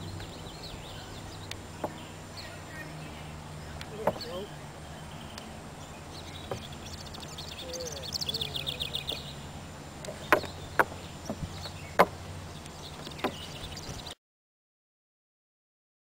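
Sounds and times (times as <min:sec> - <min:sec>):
bird trilling: 0:00.0 - 0:09.4
horse hooves knocking on wood: 0:04.0 - 0:04.4, 0:06.4 - 0:06.7, 0:10.1 - 0:12.2, 0:13.0 - 0:14.0.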